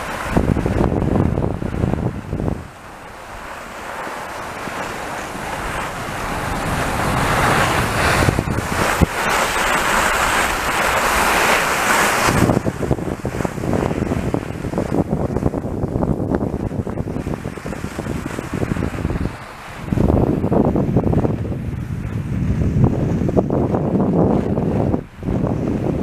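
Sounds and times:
wind on microphone: 0.0s - 26.0s
skis hissing over snow: 3.4s - 12.6s.

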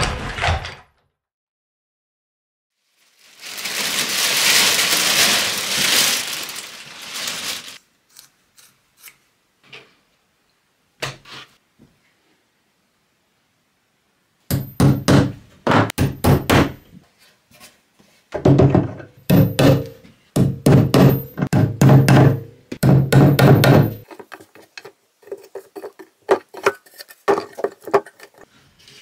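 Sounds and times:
wooden thunks and knocks: 14.5s - 16.8s, 18.4s - 24.6s.

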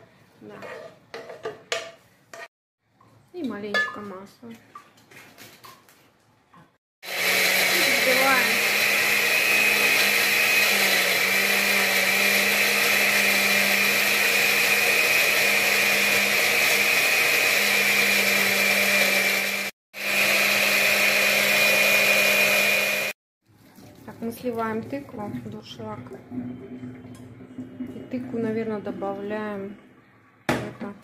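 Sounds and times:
blender motor running: 7.0s - 23.2s.

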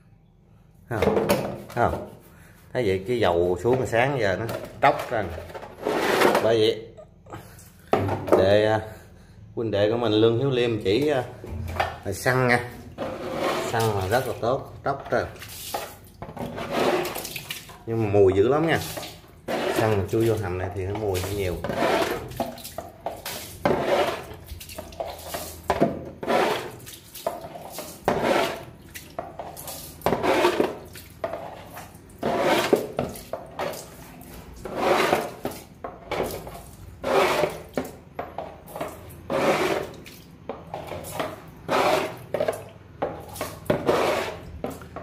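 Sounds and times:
water splashing into bilge: 10.9s - 45.0s.

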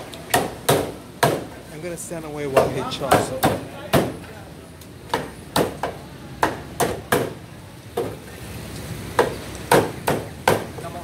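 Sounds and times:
cleaver chopping on wooden block: 0.3s - 1.5s, 5.1s - 7.4s, 9.2s - 10.7s.

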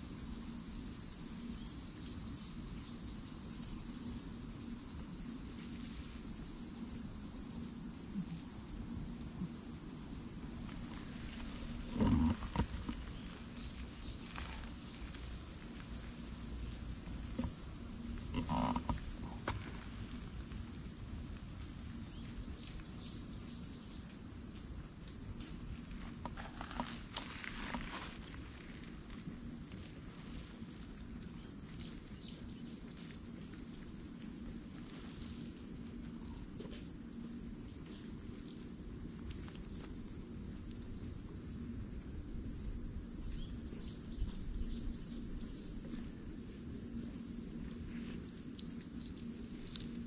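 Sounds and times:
insect chorus drone: 0.0s - 50.0s
short low animal calls: 11.8s - 13.1s, 18.3s - 19.5s.

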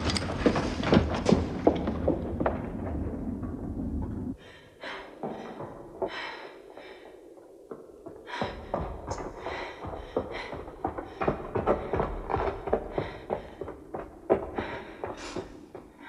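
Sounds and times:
low rumbling noise: 0.0s - 6.1s
person breathing hard: 4.4s - 16.0s.

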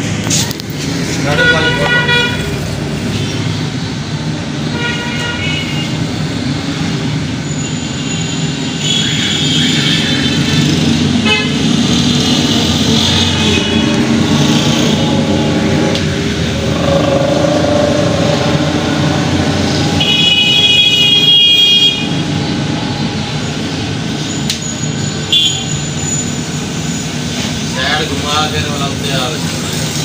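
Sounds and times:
street traffic noise: 0.0s - 30.0s
vehicle horn: 1.3s - 2.6s, 4.7s - 6.0s, 11.2s - 11.8s, 13.0s - 15.3s, 16.6s - 22.2s, 25.3s - 25.8s.

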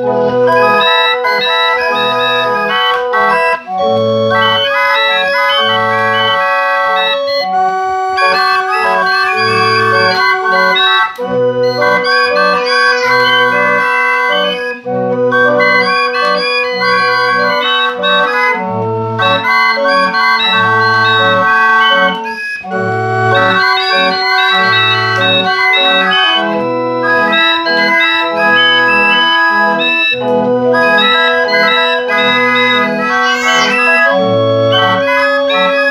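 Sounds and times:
barrel organ playing a tune: 0.0s - 35.9s.

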